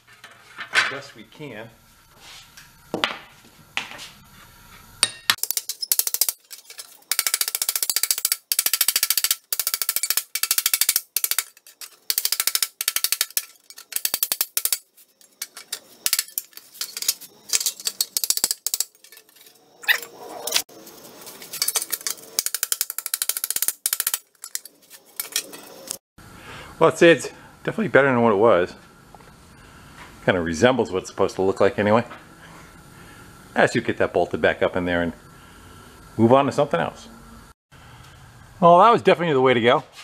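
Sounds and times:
rapid metallic clicking: 5.4s - 19.5s, 21.5s - 26.0s.

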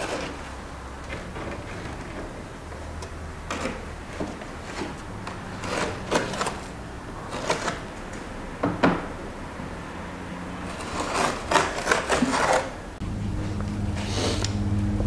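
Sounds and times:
trowel scraping wet cement: 0.0s - 2.4s, 3.4s - 8.0s, 10.6s - 12.8s
low steady hum: 12.8s - 15.0s.

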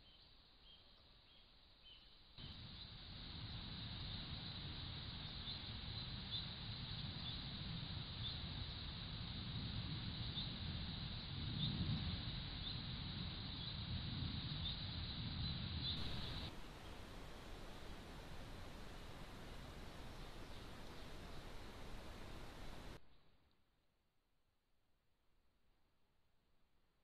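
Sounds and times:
steady hiss: 0.0s - 23.0s
low uneven rumble: 2.4s - 23.0s.

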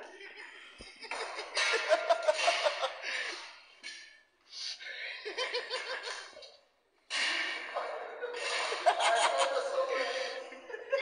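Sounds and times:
people laughing hard: 0.0s - 3.4s, 8.0s - 11.0s.

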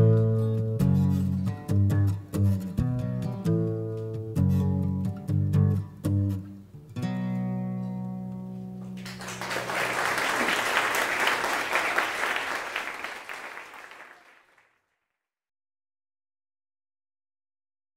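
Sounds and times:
audience applauding: 9.0s - 14.7s.

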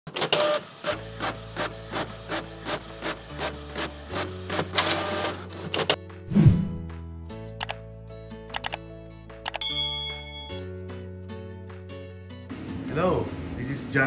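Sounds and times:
printer low hum: 0.2s - 5.4s.

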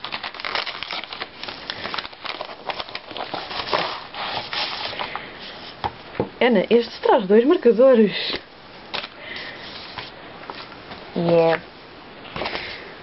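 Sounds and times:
padded envelope crinkling: 0.0s - 5.2s.

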